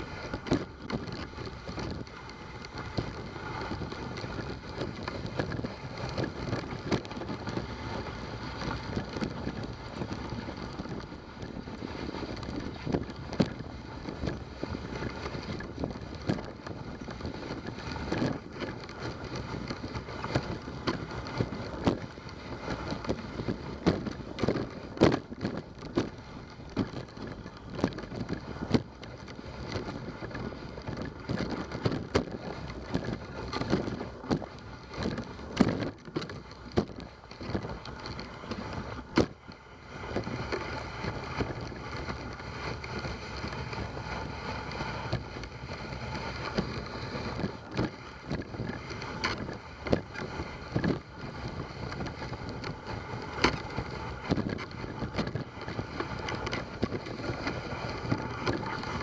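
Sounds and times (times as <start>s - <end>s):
sled knocking and clicking: 0.0s - 59.0s
wind on microphone: 0.0s - 59.0s
sled runners hissing on snow: 2.4s - 6.8s, 55.8s - 59.0s.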